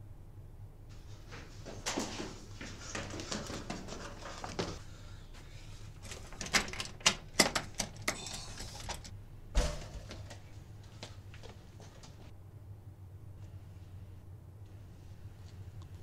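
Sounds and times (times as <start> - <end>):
footsteps going down stairs: 0.9 - 5.6, 9.6 - 12.3
door latch clicking and rattling: 6.4 - 9.1.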